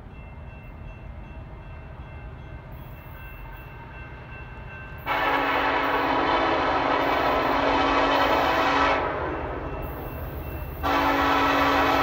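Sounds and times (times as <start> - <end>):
distant locomotive horn: 5.0 - 10.0, 10.7 - 12.0.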